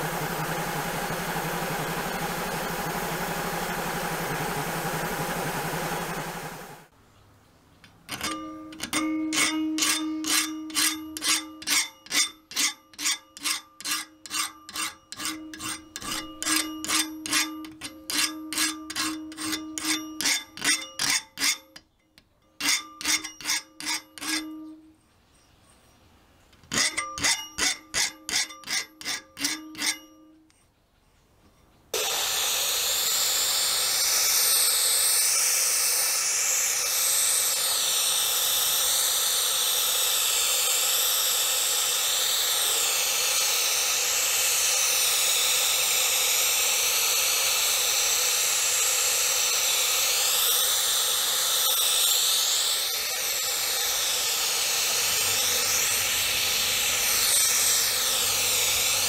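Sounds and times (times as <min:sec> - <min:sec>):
spray paint hiss: 0:32.0 - 0:59.0.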